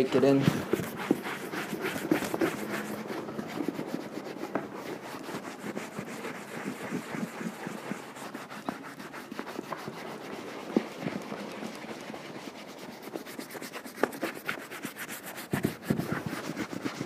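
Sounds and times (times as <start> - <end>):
cloth rubbing leather boot: 0.0 - 17.0.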